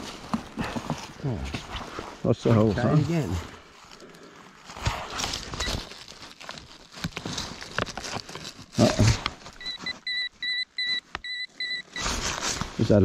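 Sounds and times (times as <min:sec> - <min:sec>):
hands scraping through leaves and soil: 0:00.0 - 0:10.1, 0:11.8 - 0:13.0
pinpointer beeping: 0:09.6 - 0:12.0.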